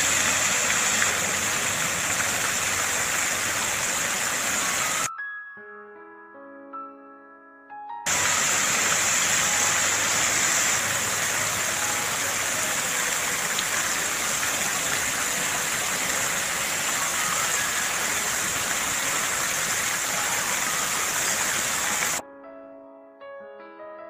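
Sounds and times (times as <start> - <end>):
fountain water splashing on steps: 0.0 - 5.1, 8.1 - 22.2.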